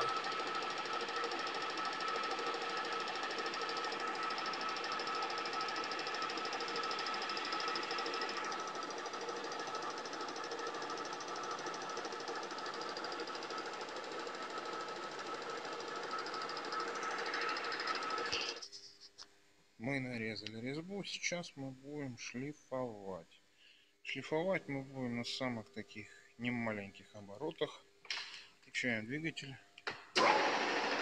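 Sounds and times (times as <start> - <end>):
lathe gear whine: 0.0 - 18.6, 30.2 - 31.0.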